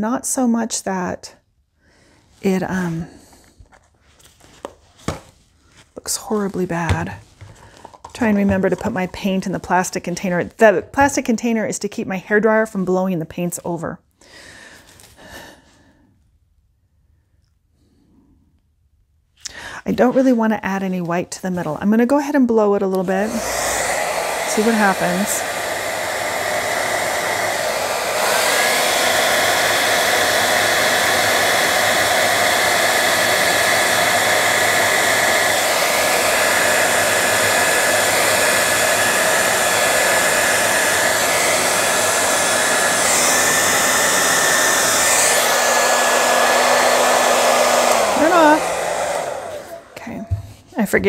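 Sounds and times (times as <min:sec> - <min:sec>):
hair dryer blowing: 0:06.0 - 0:11.5, 0:22.7 - 0:50.7.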